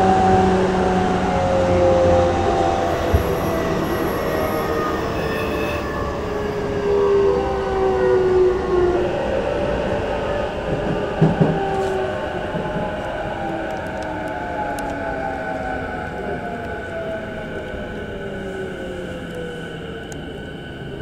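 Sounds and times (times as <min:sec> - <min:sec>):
wheels rumbling on rails: 0:00.0 - 0:21.0
train motor tones falling: 0:02.8 - 0:06.3.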